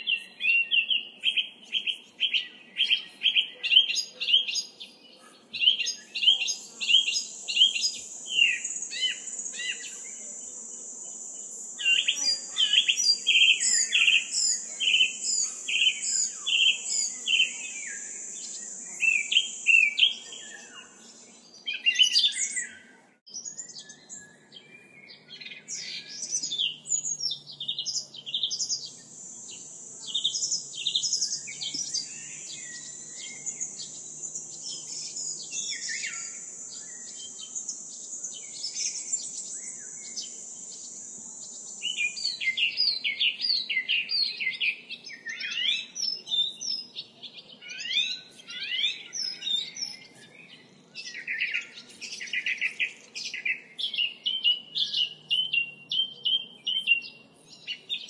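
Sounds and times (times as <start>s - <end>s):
birds chirping: 0.0s - 58.0s
high insect buzz: 3.9s - 58.0s.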